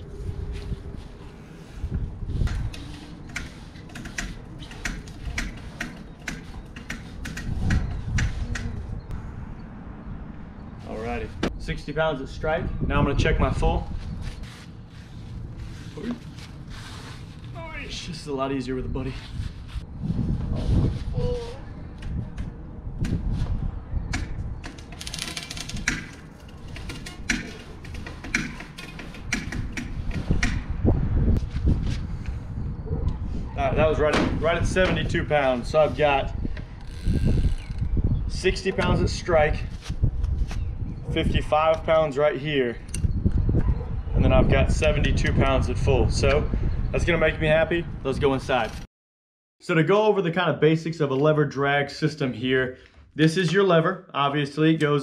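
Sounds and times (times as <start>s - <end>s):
wind rumble on microphone: 0.0s - 5.8s, 6.4s - 16.0s, 18.8s - 48.8s.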